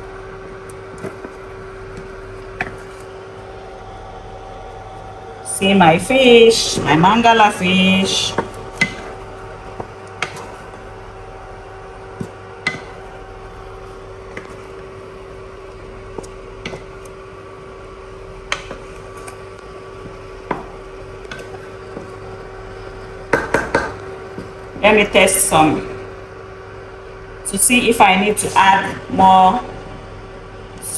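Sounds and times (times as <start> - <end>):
steady electrical hum: 0.0 - 30.9
spatula stirring thick soup: 8.0 - 23.6
spatula knocking against pot: 8.3 - 9.2, 10.2 - 10.6, 12.2 - 13.0, 23.3 - 24.5.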